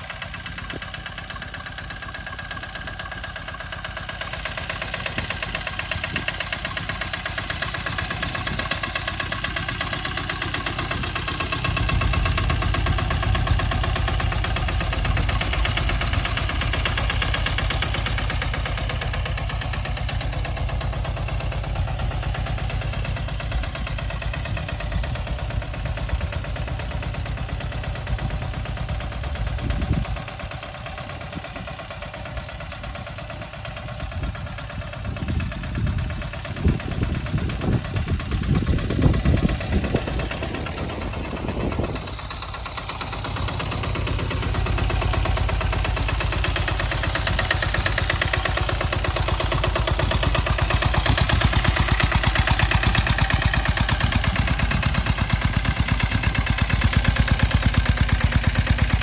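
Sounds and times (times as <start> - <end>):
small engine chugging: 0.0 - 59.0
low thumps and buffeting: 36.6 - 42.2.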